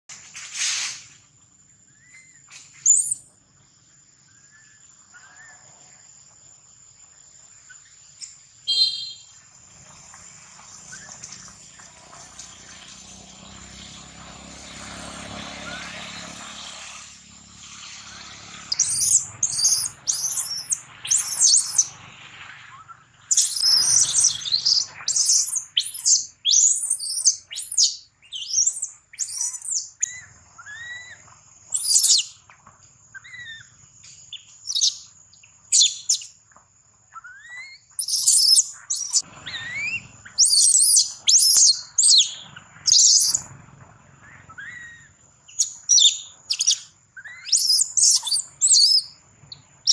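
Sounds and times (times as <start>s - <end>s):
baby monkey screaming: 18.7s - 21.9s, 22.7s - 31.2s, 31.8s - 32.4s, 33.2s - 33.8s, 37.2s - 43.4s, 44.2s - 49.1s.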